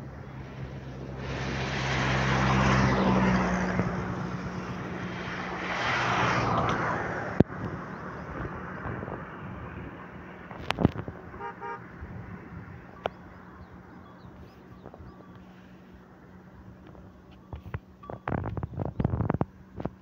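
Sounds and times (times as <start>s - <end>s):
engine humming: 0.0s - 20.0s
loud rushing noise: 0.4s - 7.5s.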